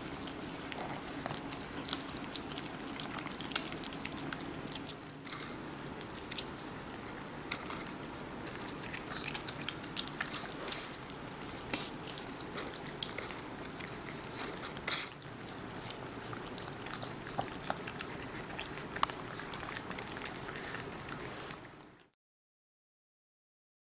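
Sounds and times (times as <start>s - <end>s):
animals chewing watermelon: 0.0s - 22.2s.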